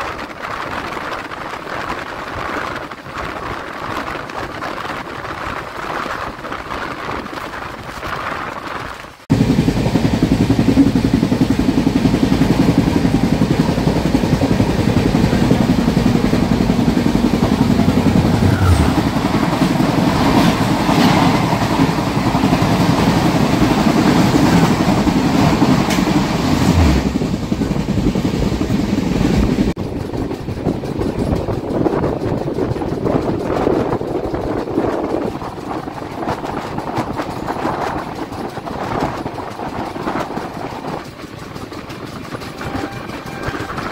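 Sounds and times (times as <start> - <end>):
train wheels rumbling on rail: 0.0 - 43.9
clatter over rail joints: 10.6 - 43.9.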